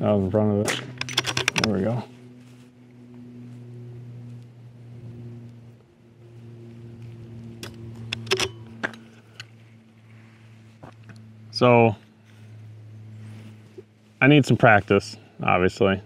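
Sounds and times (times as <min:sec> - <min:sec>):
low engine-like hum: 0:00.0 - 0:16.0
sharp clicks: 0:00.7 - 0:01.8.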